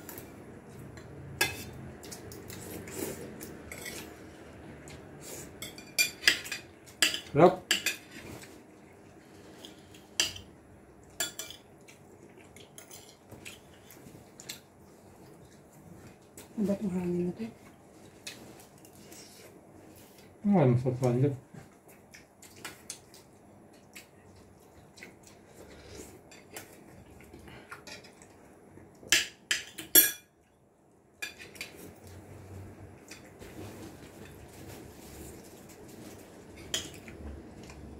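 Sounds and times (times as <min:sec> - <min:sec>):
cutlery clinking on plates: 0:05.6 - 0:08.3, 0:11.2 - 0:11.7, 0:29.1 - 0:30.3, 0:36.5 - 0:37.1
cutlery clinking on ceramic plates: 0:11.2 - 0:11.6, 0:29.1 - 0:30.3.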